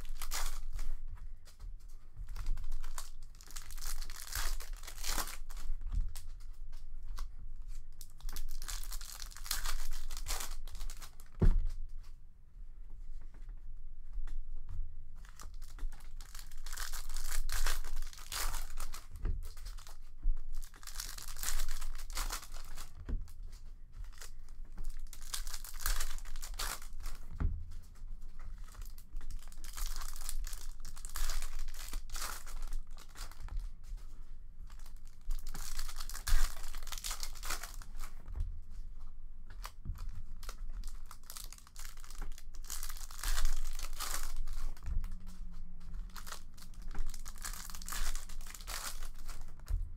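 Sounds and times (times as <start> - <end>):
foil wrappers tearing and crinkling: 0.0 - 0.8, 2.4 - 6.2, 8.0 - 11.4, 15.3 - 23.0, 24.9 - 27.3, 28.6 - 33.6, 34.8 - 38.1, 39.6 - 49.8.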